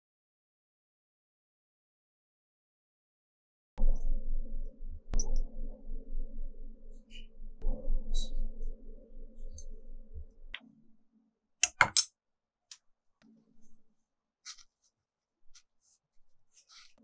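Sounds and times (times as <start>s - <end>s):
tools clicking on a table: 11.6s - 12.1s.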